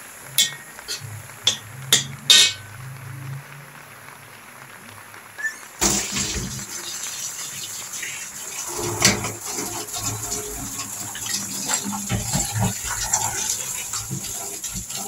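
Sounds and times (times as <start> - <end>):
metal spatula scraping a wok: 0.4 - 2.8.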